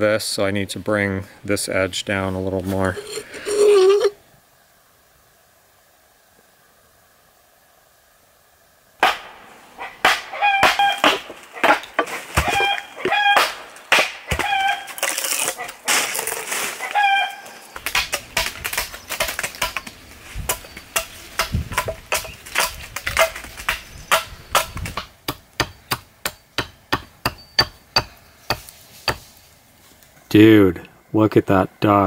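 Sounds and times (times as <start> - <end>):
chickens clucking: 9.8 - 13.5, 15.5 - 17.8
axe chopping wood: 10.0 - 15.4, 17.8 - 19.9, 20.5 - 29.2.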